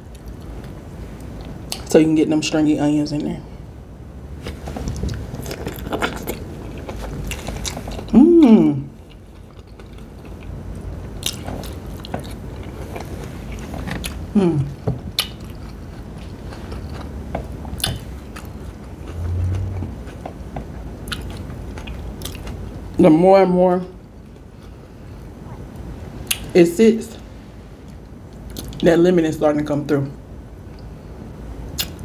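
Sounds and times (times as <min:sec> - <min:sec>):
chewing and wet mouth sounds: 0:04.6 - 0:08.2, 0:08.9 - 0:22.9, 0:27.8 - 0:28.8
person humming mmm: 0:08.1 - 0:09.0, 0:14.3 - 0:14.8, 0:19.1 - 0:20.0.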